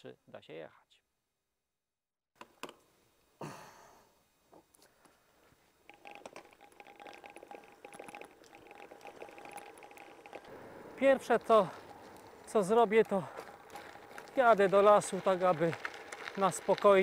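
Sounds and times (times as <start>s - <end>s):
bicycle rolling with clicks: 5.9s - 17.0s.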